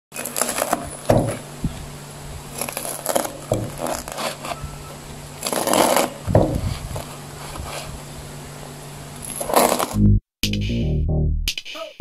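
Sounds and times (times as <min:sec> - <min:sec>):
knife crunching through crispy crust: 0:00.2 - 0:00.9, 0:02.5 - 0:04.6, 0:05.4 - 0:07.9, 0:09.4 - 0:10.0.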